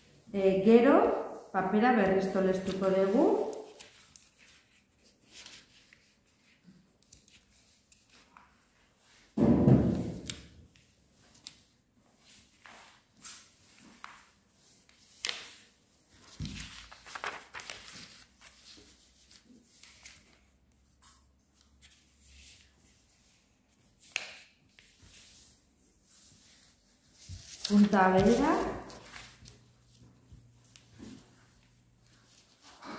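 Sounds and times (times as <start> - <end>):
paper rustling and scraping: 12.2 - 20.4, 24.0 - 30.1.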